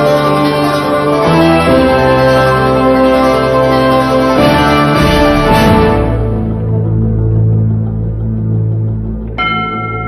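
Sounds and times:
bell-like chime ringing: 0:09.4 - 0:10.0.

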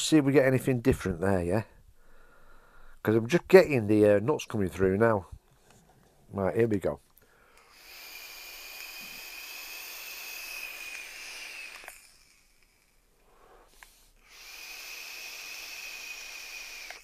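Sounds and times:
vape draw hissing and whistling: 0:07.5 - 0:17.0.

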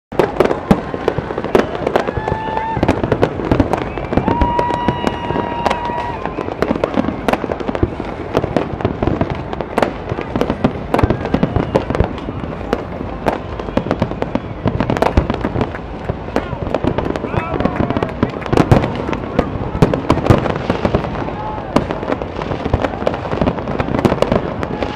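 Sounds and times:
fireworks bangs and crackles: 0:00.1 - 0:24.9
whistle-like tone: 0:03.7 - 0:06.5.

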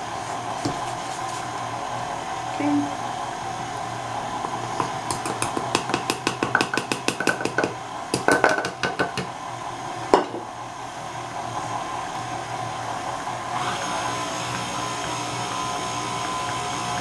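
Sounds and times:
stand mixer motor hum: 0:00.0 - 0:17.0
dough hook knocking in metal bowl: 0:04.4 - 0:09.3.

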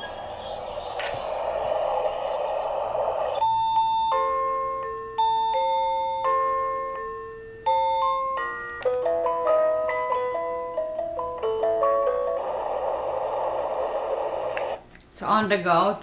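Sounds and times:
steady soothing hiss: 0:00.0 - 0:16.0
chiming lullaby melody: 0:03.4 - 0:13.3.

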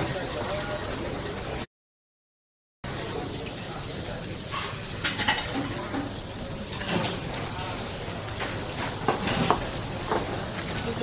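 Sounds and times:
steak sizzling on a grill: 0:03.0 - 0:11.0
plates and utensils clinking: 0:04.5 - 0:07.4, 0:08.4 - 0:11.0.

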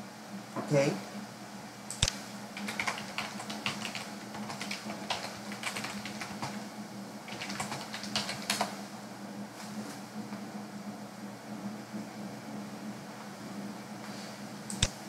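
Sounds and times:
low steady hum: 0:00.0 - 0:15.0
keyboard typing: 0:01.9 - 0:06.6, 0:07.3 - 0:08.8.

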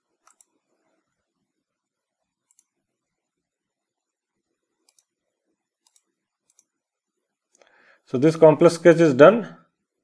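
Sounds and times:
computer mouse clicks: 0:00.1 - 0:00.8, 0:02.3 - 0:02.9, 0:04.8 - 0:05.2, 0:05.8 - 0:06.8.

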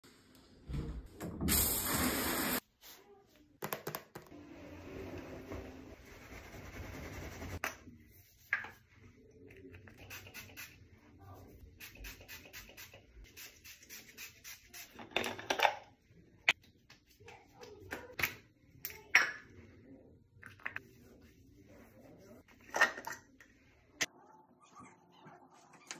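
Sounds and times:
towel rubbing wet hair: 0:04.9 - 0:07.6.

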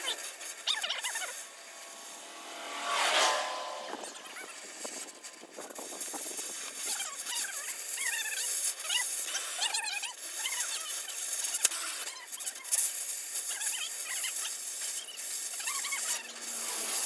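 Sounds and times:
high wavering squealing: 0:00.0 - 0:05.8
cutting torch hissing: 0:00.0 - 0:17.0.

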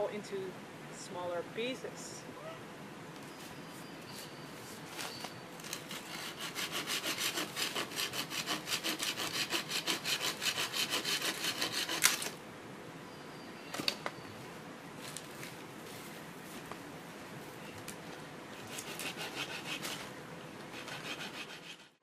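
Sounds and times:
pruning saw rasping through branch: 0:05.7 - 0:12.4, 0:18.6 - 0:20.1, 0:20.7 - 0:22.0.

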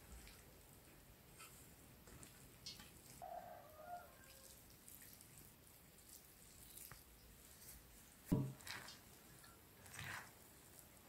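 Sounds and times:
water dripping over rice: 0:00.0 - 0:11.0
spatula scraping rice in colander: 0:08.6 - 0:10.9.

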